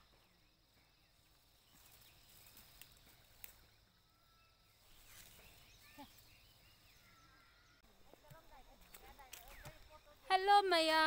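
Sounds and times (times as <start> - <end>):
rustling of pea vines: 1.2 - 3.8, 4.8 - 6.6, 8.0 - 10.3
pea pods snapping: 2.6 - 3.7.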